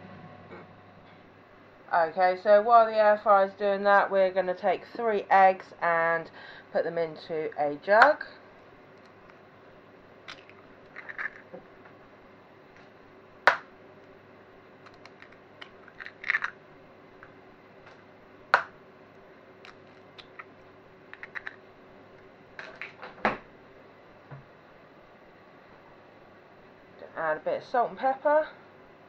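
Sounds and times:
eggshells crackling apart: 10.2 - 11.5, 14.8 - 16.6, 19.6 - 21.6.

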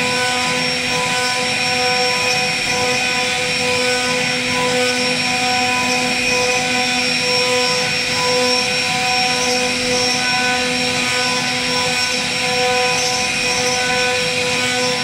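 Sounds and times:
router bit cutting wood: 0.0 - 15.0
router spindle whining: 0.0 - 15.0.

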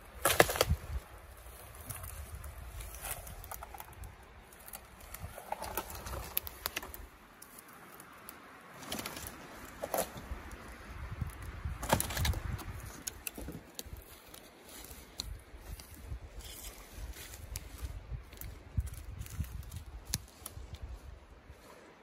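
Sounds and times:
wind rumble on microphone: 0.0 - 7.1, 10.1 - 14.2, 15.2 - 21.8
tree trunk cracking and splintering: 0.0 - 20.8.

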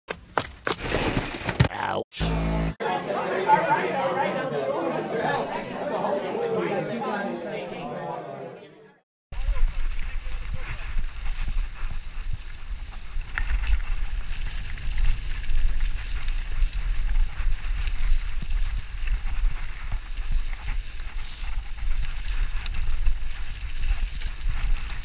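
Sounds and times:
wind rumble on microphone: 9.3 - 25.0
bike rattles and clicks: 9.4 - 25.0
tyres crackling through leaves: 9.4 - 25.0.

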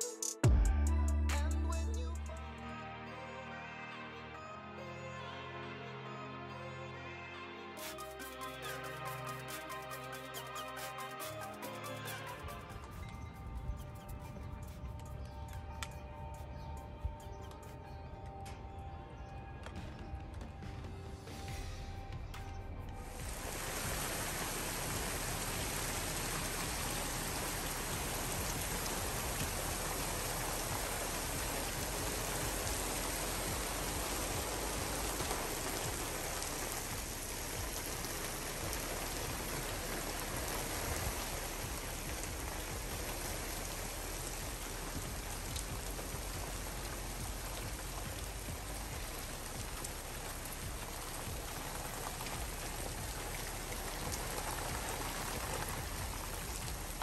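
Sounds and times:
rain pattering on the ground: 23.0 - 57.0.

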